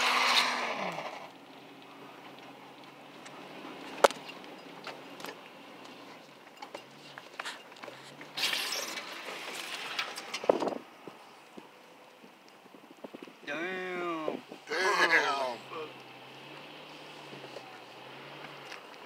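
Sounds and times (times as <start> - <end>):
distant vehicle engine running: 14.4 - 19.0.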